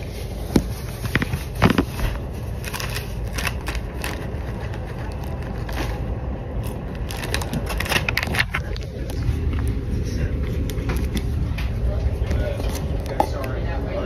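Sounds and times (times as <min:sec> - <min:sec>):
plastic snack bag crinkling: 0:00.0 - 0:09.2
train rumble: 0:00.0 - 0:14.0.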